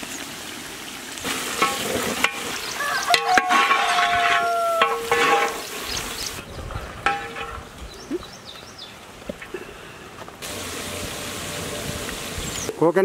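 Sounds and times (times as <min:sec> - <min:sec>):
food sizzling: 0:00.0 - 0:08.2, 0:10.4 - 0:12.8
metal spatula scraping metal pot: 0:01.3 - 0:06.0.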